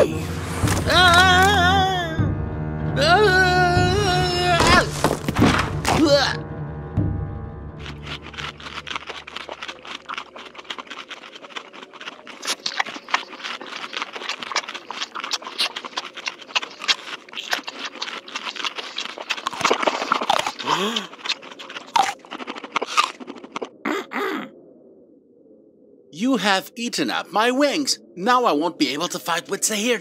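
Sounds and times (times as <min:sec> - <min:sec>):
cartoon mice gnawing: 0:07.8 - 0:23.8.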